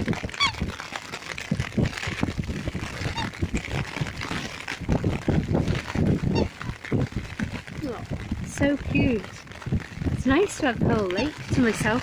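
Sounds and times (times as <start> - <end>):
wind buffeting microphone: 0.0 - 12.0
swan call: 6.3 - 6.8, 11.1 - 11.5.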